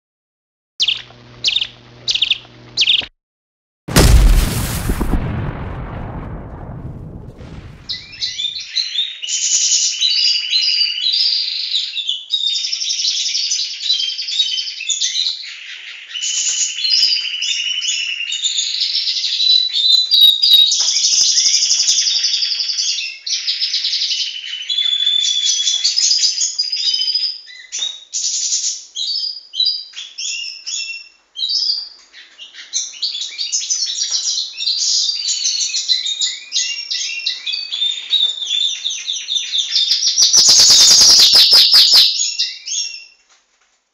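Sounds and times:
birds singing trills and chirps: 0.8s - 3.1s, 29.1s - 43.2s.

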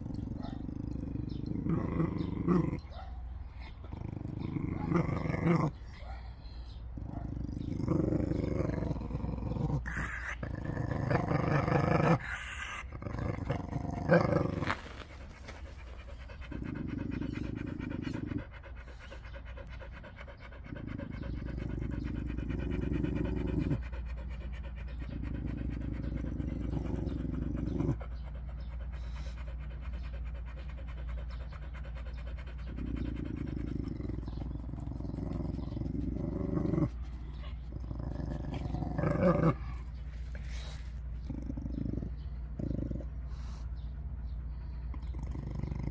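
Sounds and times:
dog panting: 14.3s - 45.9s.

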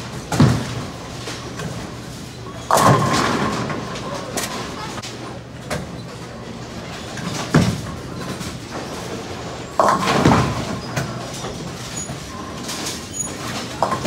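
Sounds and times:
bowling alley din: 0.1s - 5.2s, 5.8s - 14.0s
bowling ball crashing into pins: 2.7s - 4.7s, 9.8s - 11.2s.

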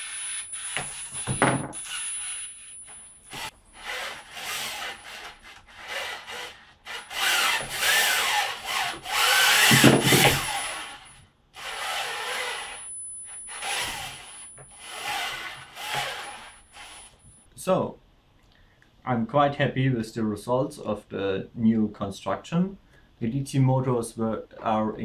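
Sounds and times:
geared motor whining and grinding: 3.3s - 17.2s.

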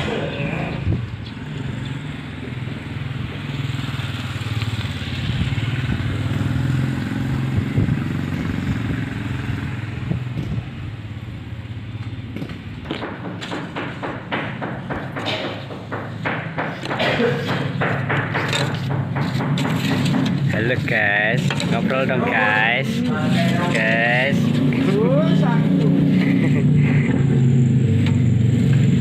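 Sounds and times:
vehicle engine passing: 0.0s - 13.3s, 14.7s - 29.0s
short sharp knocks: 12.9s - 20.6s.

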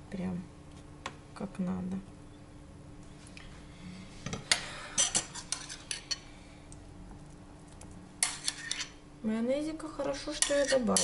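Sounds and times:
cutlery clinking against dishes: 5.0s - 6.2s.

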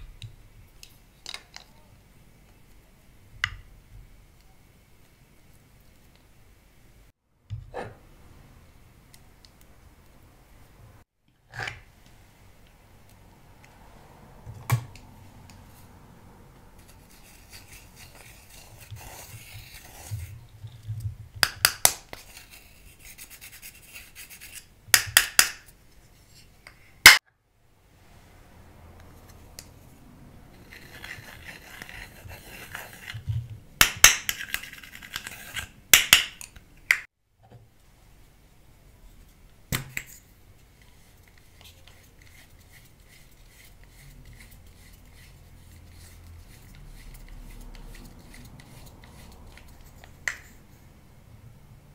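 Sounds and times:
eyeshadow scratching and crumbling: 16.7s - 20.9s, 30.5s - 33.3s, 34.2s - 35.8s, 40.8s - 50.6s.

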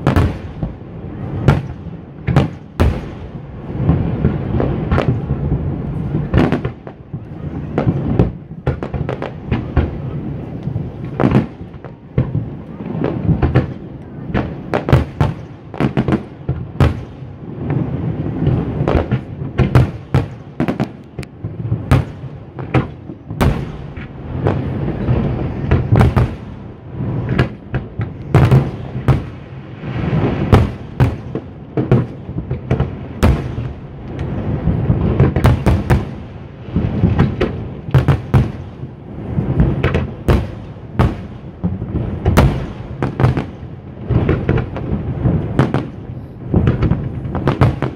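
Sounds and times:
fireworks bursting: 0.0s - 47.9s.

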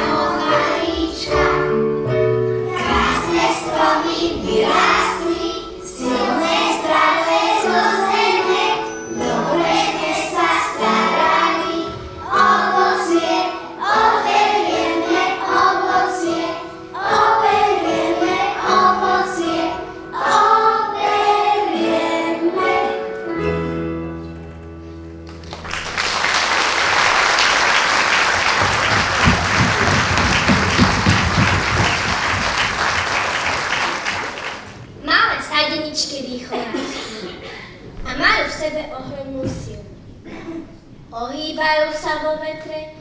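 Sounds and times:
children's choir singing: 0.0s - 23.5s, 26.2s - 34.7s
audience applause: 25.3s - 34.8s.

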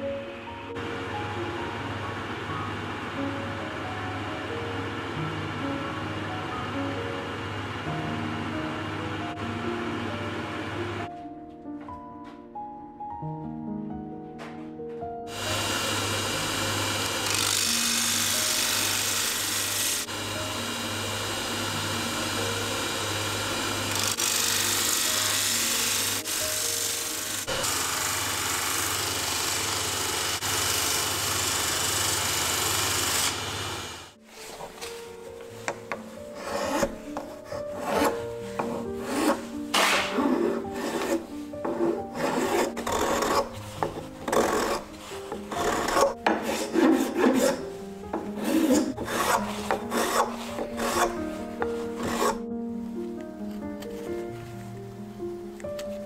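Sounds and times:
sanding wheel motor hum: 15.3s - 34.2s, 36.4s - 52.4s
hand file rasping on wood: 21.8s - 28.1s, 36.4s - 52.4s
hissing sanding of wood: 36.4s - 52.4s.

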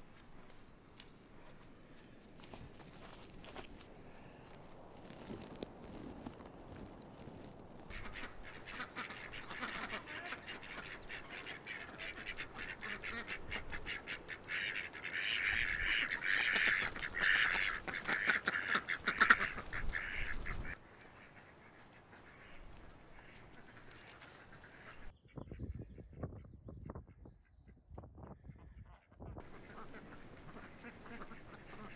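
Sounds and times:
ducks quacking: 7.9s - 25.1s, 28.6s - 31.9s.

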